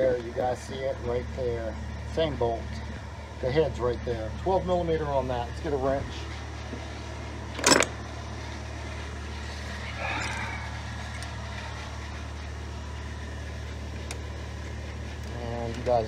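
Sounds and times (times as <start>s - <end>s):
low hum: 0.0s - 16.0s
soft rattle or scrape: 6.1s - 15.8s
metal tools clanking: 7.5s - 8.0s, 9.8s - 11.4s.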